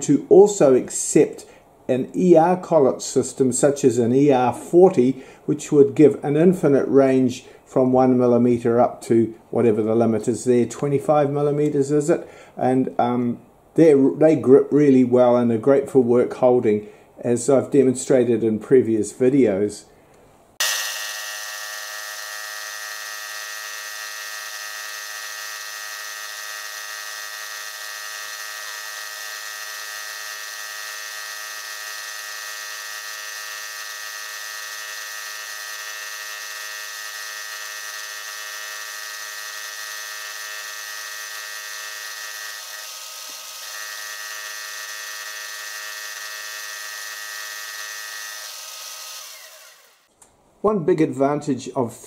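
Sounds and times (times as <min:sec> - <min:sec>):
milling machine whine: 0:20.6 - 0:50.1.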